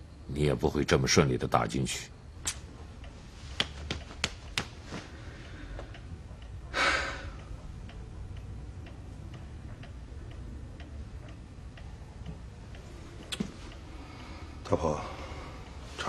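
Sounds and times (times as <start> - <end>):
clock ticking: 5.4 - 13.9.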